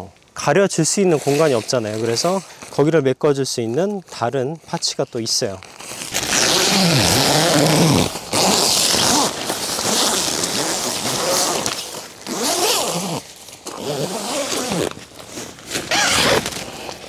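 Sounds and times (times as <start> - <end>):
tent zipper being pulled: 1.1 - 2.8, 5.6 - 17.0.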